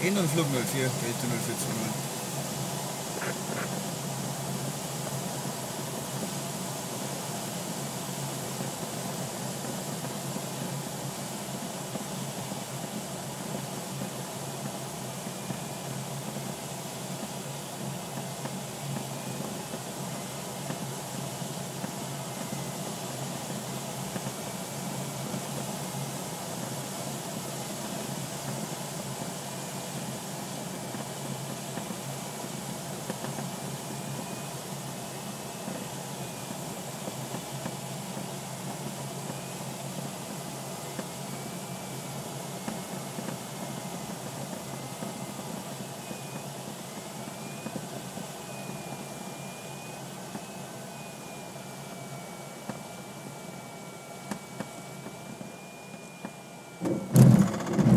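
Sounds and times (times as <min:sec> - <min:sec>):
airflow rushing around cockpit: 0:00.0 - 0:57.9.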